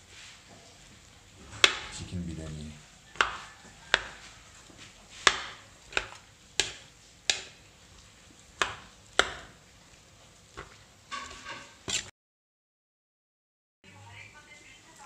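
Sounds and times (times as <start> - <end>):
metal spoon knocking on metal pot: 1.5 - 2.0, 8.6 - 9.6.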